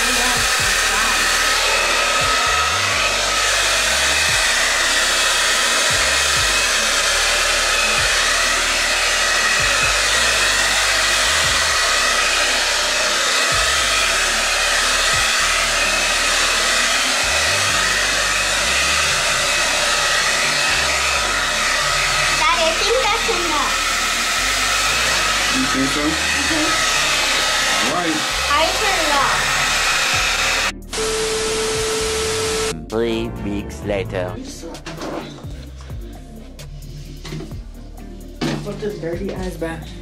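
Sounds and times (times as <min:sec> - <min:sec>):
hair dryer running: 0:00.0 - 0:32.8.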